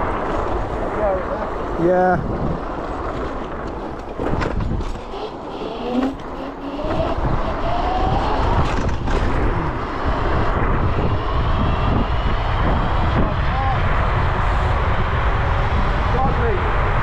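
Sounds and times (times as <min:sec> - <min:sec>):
wind rumbling on microphone: 0:00.0 - 0:17.0
electric motor whine: 0:05.0 - 0:12.9.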